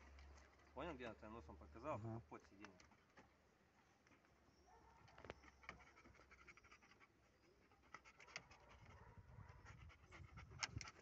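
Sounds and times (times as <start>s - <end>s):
dog panting: 5.3s - 11.0s.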